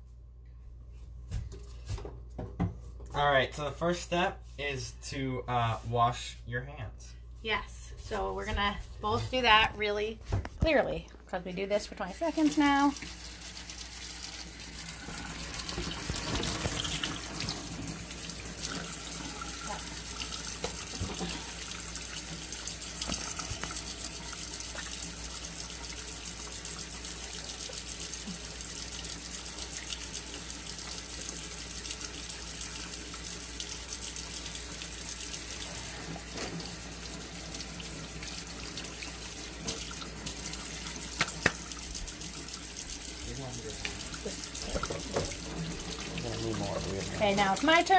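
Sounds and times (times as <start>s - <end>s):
faucet running into steel sink: 12.0s - 47.9s
hands washing under water: 12.3s - 47.9s.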